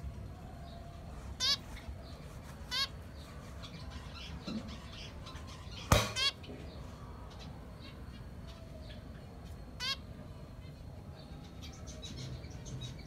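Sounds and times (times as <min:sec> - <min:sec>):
finches chirping: 0:00.5 - 0:13.0
sharp knock: 0:05.9 - 0:06.3.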